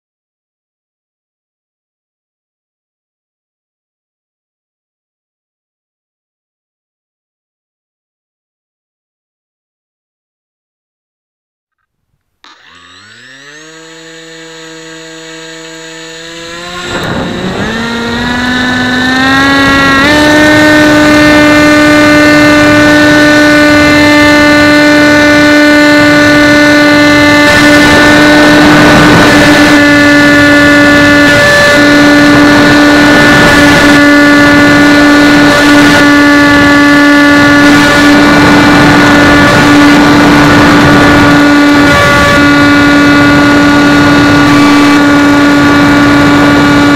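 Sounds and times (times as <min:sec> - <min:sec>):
electric motor and propeller whine: 0:12.4 - 0:46.9
wind rushing on microphone: 0:16.3 - 0:46.9.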